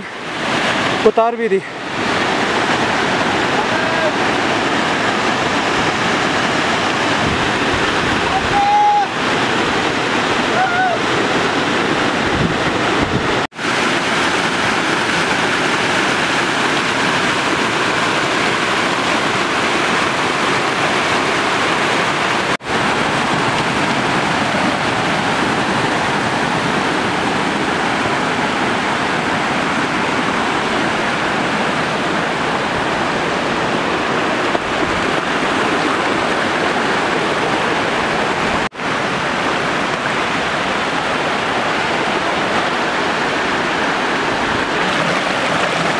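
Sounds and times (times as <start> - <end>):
stream pouring down rocks: 0.0 - 45.9
waterfall rushing: 0.0 - 45.9.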